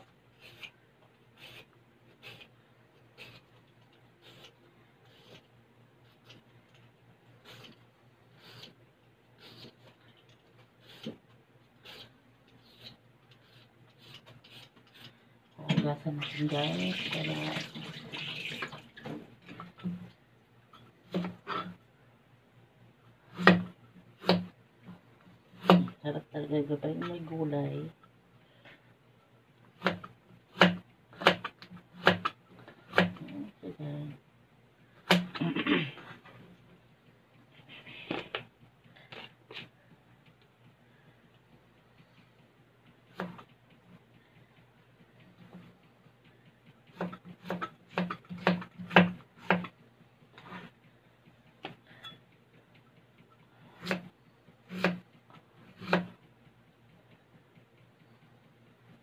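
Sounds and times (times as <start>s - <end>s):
knife chopping carrot on board: 23.3s - 24.5s, 25.6s - 26.0s, 29.8s - 33.2s, 46.9s - 49.7s, 53.8s - 54.1s, 54.7s - 55.0s, 55.8s - 56.2s.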